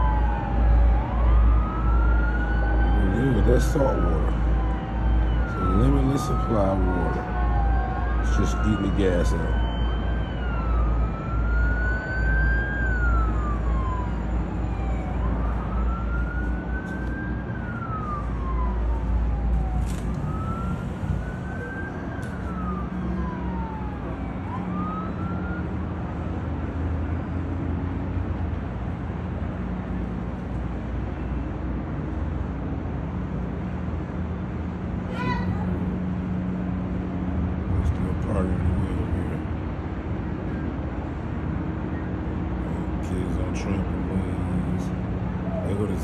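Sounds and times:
siren wailing: 0.0 - 26.9, 35.7 - 46.0.

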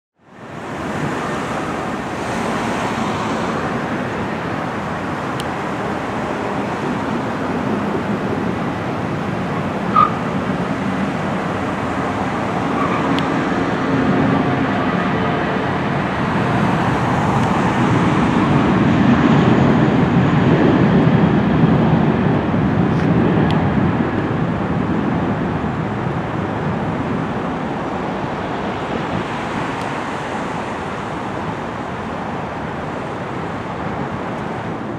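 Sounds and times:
road traffic: 0.1 - 34.9
jet engines roaring: 0.2 - 34.9.

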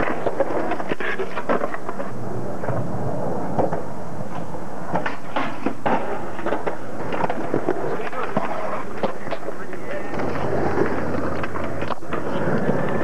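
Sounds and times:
skateboard clacks: 0.0 - 13.0
skateboard wheels rolling on concrete: 0.0 - 13.0.

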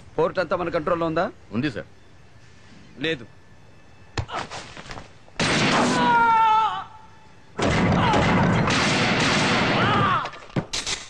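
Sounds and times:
loud gunfire and crashing: 7.6 - 10.3.

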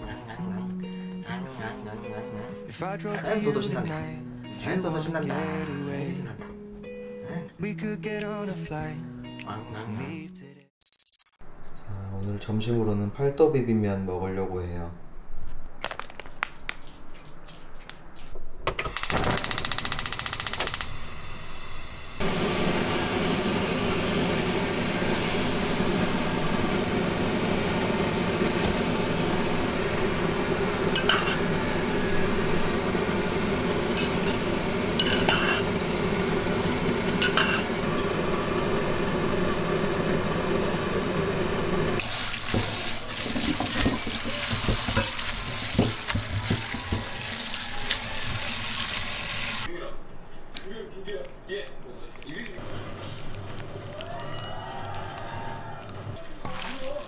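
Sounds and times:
tap water running: 41.9 - 49.7, 56.4 - 57.0.

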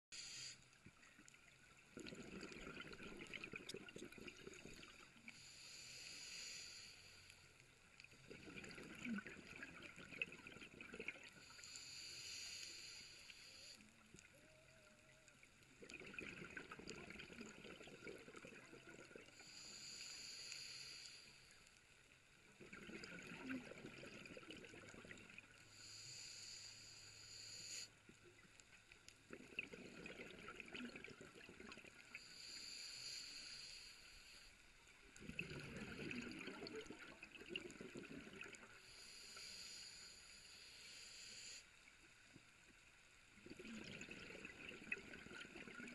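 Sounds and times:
scuba regulator breathing: 0.1 - 0.7, 5.3 - 7.5, 11.4 - 13.9, 19.3 - 21.7, 25.6 - 28.0, 32.2 - 34.7, 38.7 - 41.8
bubbling exhale: 2.0 - 7.2, 8.3 - 13.8, 22.6 - 27.9, 29.3 - 34.4, 35.1 - 41.6, 43.4 - 45.9.

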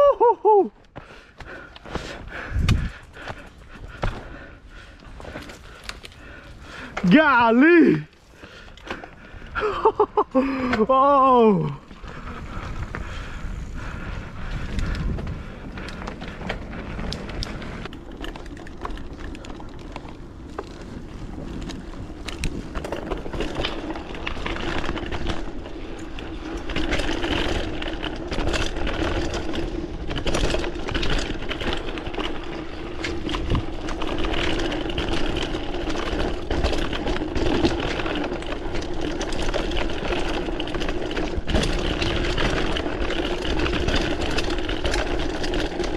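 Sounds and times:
bike rattling and knocking: 0.8 - 45.9
wind noise on microphone: 2.3 - 3.4, 12.0 - 17.9, 32.2 - 36.8.

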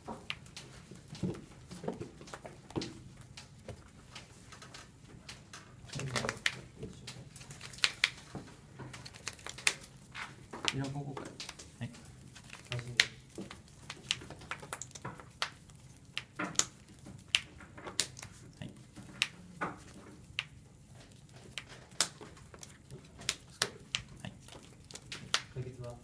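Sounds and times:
cards clicking and tapping: 5.3 - 25.5.

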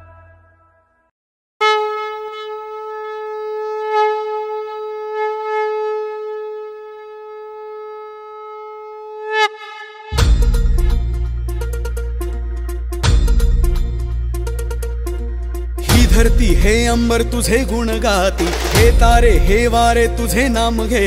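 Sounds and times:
music: 0.0 - 1.1, 10.1 - 21.0
conch shell blown: 0.0 - 11.2.

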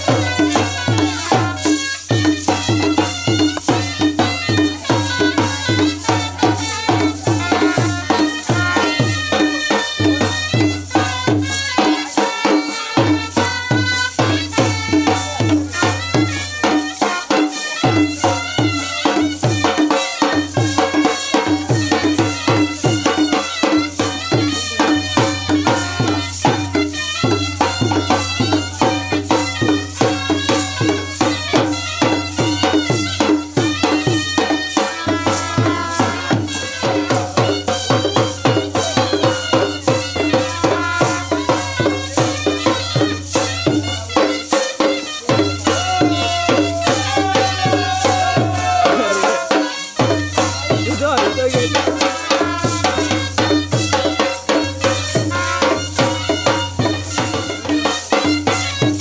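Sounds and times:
fast percussion beat: 0.0 - 59.0
sliding melody: 32.2 - 58.2.

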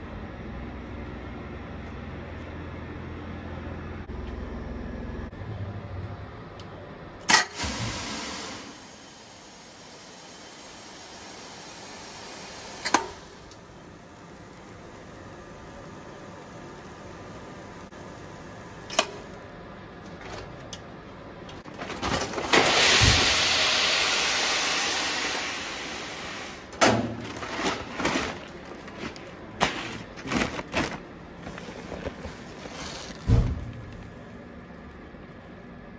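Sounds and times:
rice pouring from a hopper: 22.2 - 26.6
sack being handled: 27.3 - 33.3.

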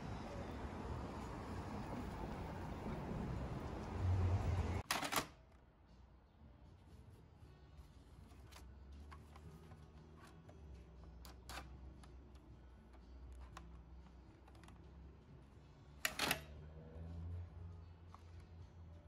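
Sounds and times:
paper cassette clattering into printer: 4.8 - 5.3.

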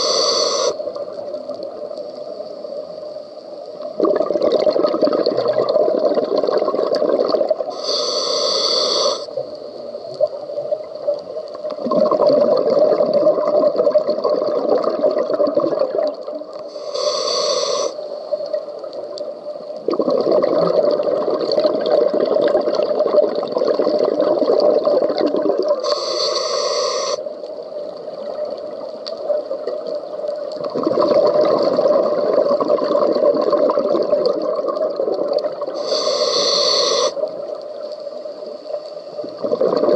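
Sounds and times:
hissing regulator inhale: 0.0 - 0.9, 7.7 - 9.7, 16.7 - 18.5, 25.8 - 27.4, 35.7 - 37.3
bubbling exhaust underwater: 3.8 - 18.6, 19.8 - 27.2, 28.1 - 37.6, 39.1 - 39.9.

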